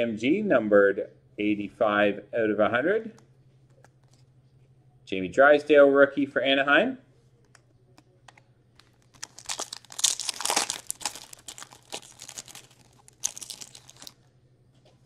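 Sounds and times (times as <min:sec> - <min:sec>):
faint clicks of cards handled: 0:03.2 - 0:04.7
foil wrapper tearing and crinkling: 0:08.8 - 0:14.2.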